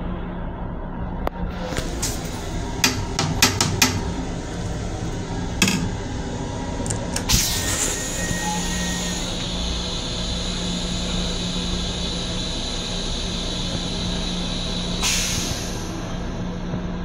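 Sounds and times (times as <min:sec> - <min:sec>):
electric railcar hum: 0:00.0 - 0:17.0
loud hiss: 0:07.3 - 0:16.2.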